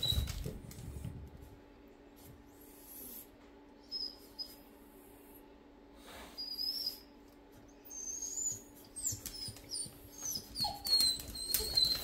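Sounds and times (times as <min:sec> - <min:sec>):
dog whining: 0:06.3 - 0:07.2, 0:07.8 - 0:12.0.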